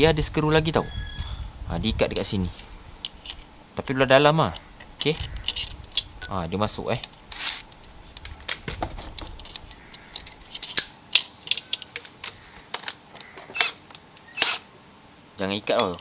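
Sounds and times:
metal bolt clinking and tapping: 4.5s - 6.4s, 7.0s - 13.7s, 15.6s - 16.0s.

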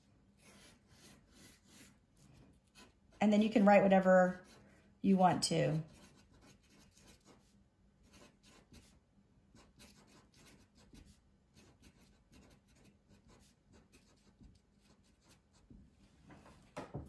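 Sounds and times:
marker writing on paper: 0.4s - 3.2s, 5.8s - 9.0s, 9.6s - 15.7s.

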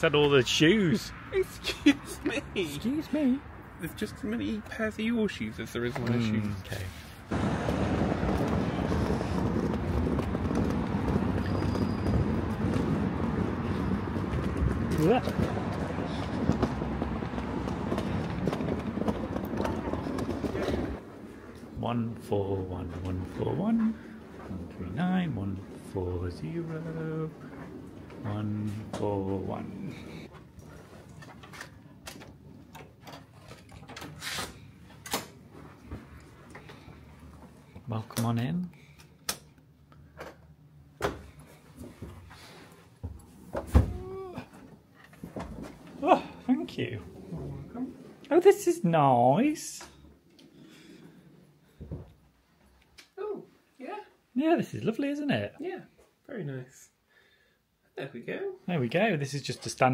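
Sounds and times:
suitcase wheels rattling on paving: 7.3s - 21.1s.

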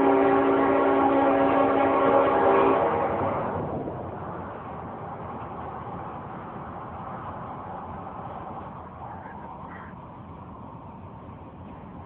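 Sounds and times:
train sound: 0.0s - 12.0s
road and wind noise in car: 3.0s - 12.0s.

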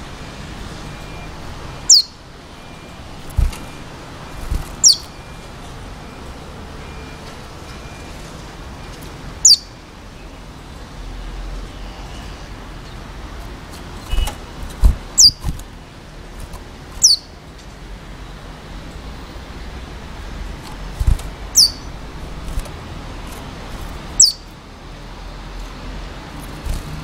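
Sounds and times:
low thumps: 14.7s - 15.6s.

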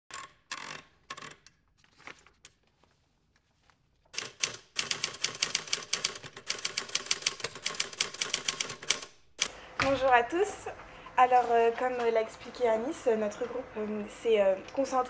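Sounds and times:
typewriter keystrokes: 4.2s - 9.5s.

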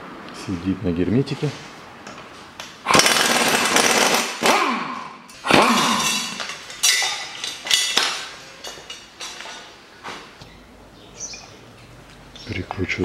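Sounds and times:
impact wrench hammering: 2.9s - 8.3s
metallic clanks and clinks: 5.3s - 9.7s.

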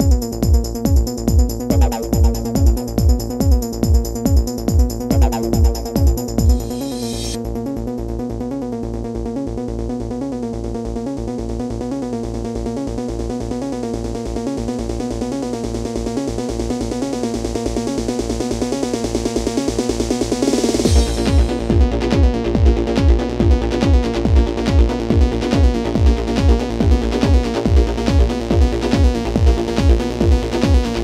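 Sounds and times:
held synthesizer chords: 0.0s - 31.0s
steady bass: 0.0s - 31.0s
rising noise sweep: 20.5s - 24.5s.

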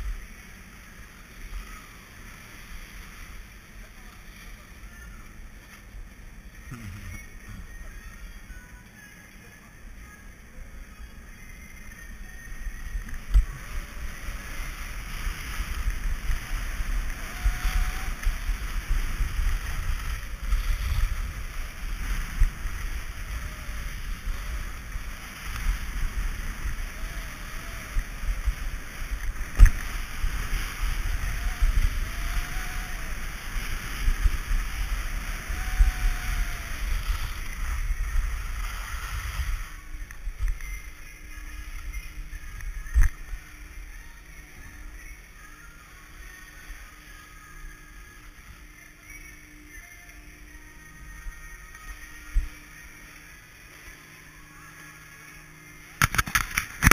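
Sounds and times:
skis hissing over snow: 0.0s - 8.6s, 9.6s - 56.0s
wind noise on microphone: 12.6s - 44.9s, 56.0s - 56.9s.

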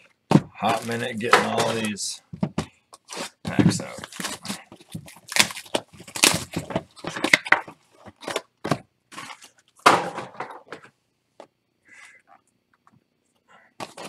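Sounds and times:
packs crinkling and rustling: 0.6s - 2.1s, 2.9s - 8.5s.

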